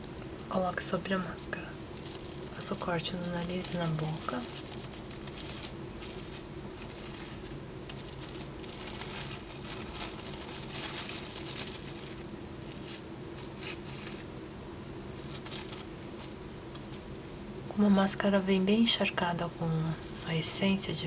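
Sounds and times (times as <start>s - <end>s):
faint low hum: 0.0s - 21.0s
plastic film crinkling: 1.0s - 14.4s, 15.1s - 18.0s.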